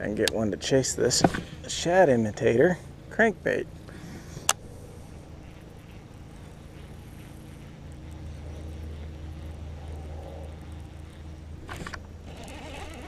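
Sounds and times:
fishing reel cranking hum: 4.6 - 13.0.

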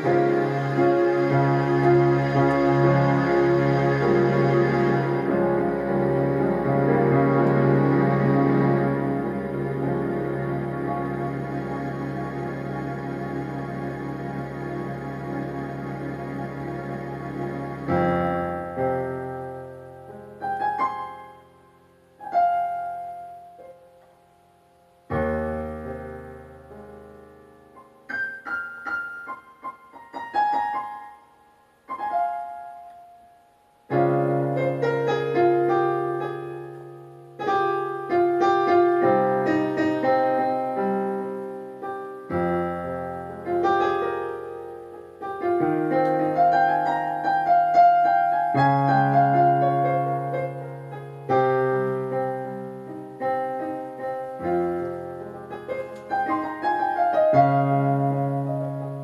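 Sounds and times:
solo piano: 0.0 - 59.0.

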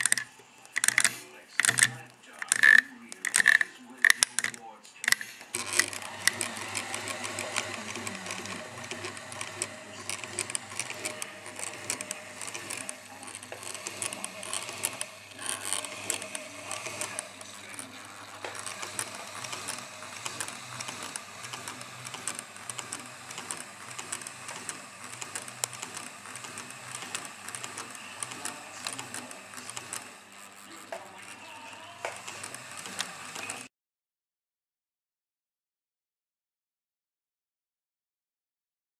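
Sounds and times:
sewing machine clattering: 0.0 - 33.7
low motor hum: 5.4 - 33.7.

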